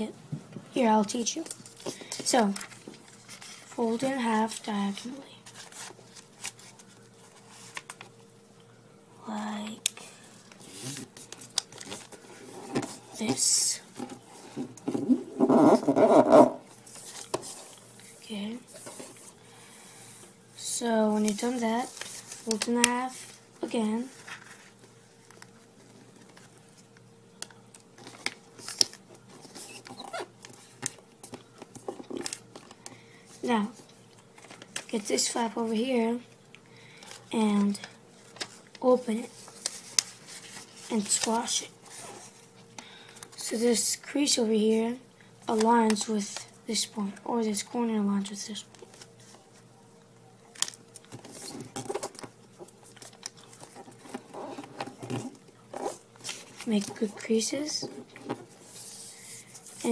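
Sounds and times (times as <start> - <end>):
paper rustling and crinkling: 1.4 - 4.6, 5.3 - 8.1, 10.4 - 15.2, 21.0 - 32.9, 33.7 - 35.0, 37.0 - 42.6, 50.5 - 59.9
paper being folded and creased: 2.4 - 4.6, 5.4 - 8.1, 10.5 - 13.3, 21.0 - 26.6, 37.6 - 42.4.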